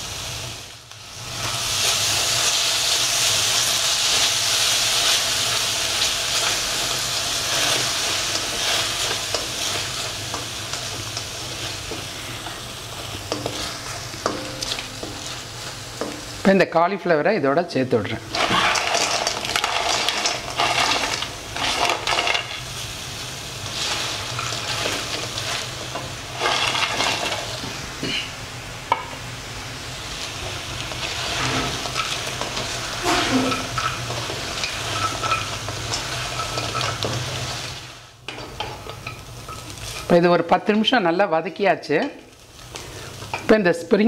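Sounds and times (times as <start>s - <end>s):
food sizzling in a pan: 0.0s - 44.0s
spatula scraping a pan: 6.3s - 16.3s, 18.3s - 22.6s, 23.6s - 27.6s, 30.9s - 40.2s.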